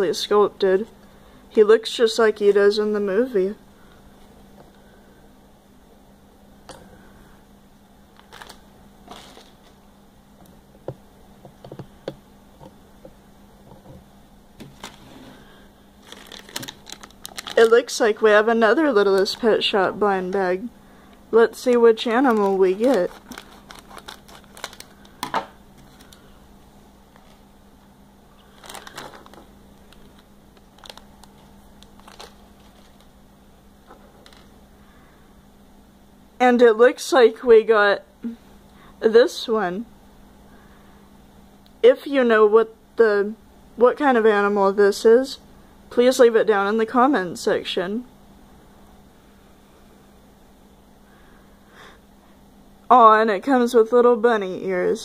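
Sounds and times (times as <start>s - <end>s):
faint steady hum: 0.0s - 55.0s
plastic packet crinkling: 8.2s - 9.8s, 14.6s - 15.1s, 16.0s - 20.4s, 21.5s - 26.3s, 27.1s - 27.5s, 28.4s - 33.2s, 34.0s - 34.5s.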